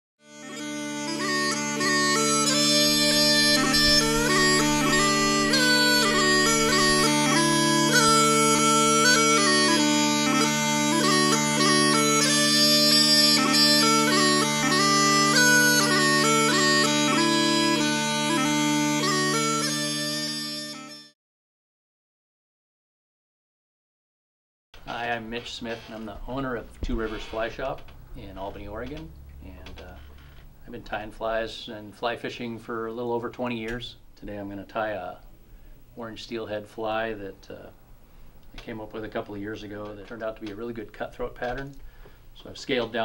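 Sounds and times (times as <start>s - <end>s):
bagpipe melody with drones: 0.2s - 21.2s, 25.4s - 29.0s.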